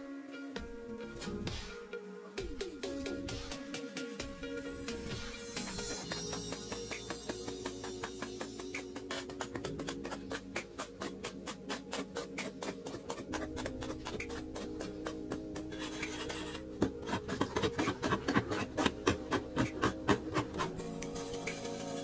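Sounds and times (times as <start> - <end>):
background music with beat: 0.0 - 22.0
hand tools chopping earth: 6.0 - 20.8.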